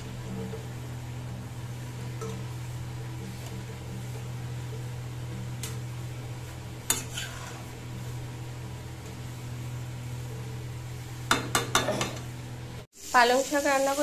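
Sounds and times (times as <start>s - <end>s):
metal spatula knocking on pan: 11.3s - 12.2s.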